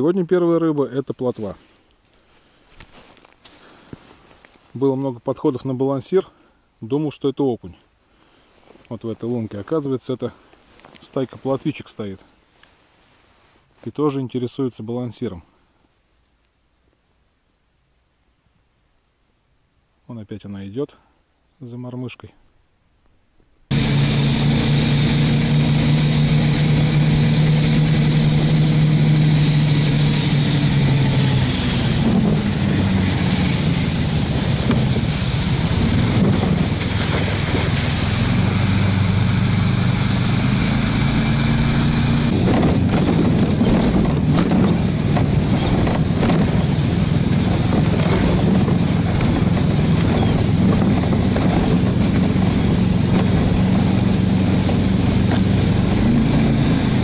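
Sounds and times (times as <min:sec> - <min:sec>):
sled hissing over snow: 0:23.7 - 0:57.0
snow tow engine running: 0:23.7 - 0:57.0.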